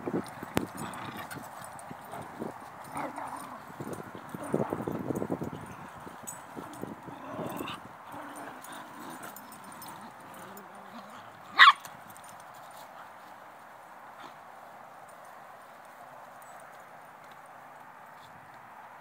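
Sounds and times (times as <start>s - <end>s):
dogs scuffling: 0.1s - 13.8s
dog barking: 11.5s - 11.8s.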